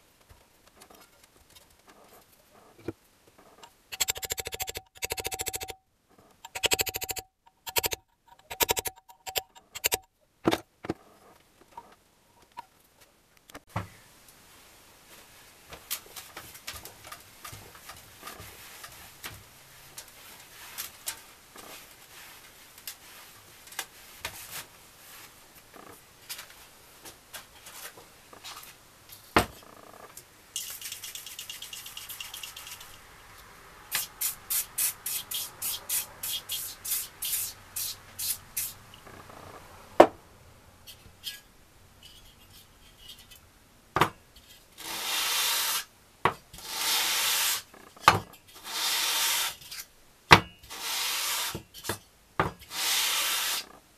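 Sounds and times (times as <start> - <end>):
metal rubbing on wet sandpaper: 6.4 - 10.0, 30.6 - 33.0, 33.9 - 38.8, 46.6 - 47.7, 48.5 - 49.8, 50.7 - 51.9, 52.7 - 53.7
aerosol can spraying: 33.9 - 38.8.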